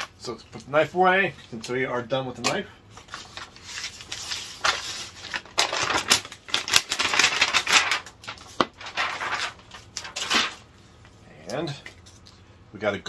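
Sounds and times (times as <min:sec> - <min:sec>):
envelope rustling and crinkling: 0:02.9 - 0:10.7.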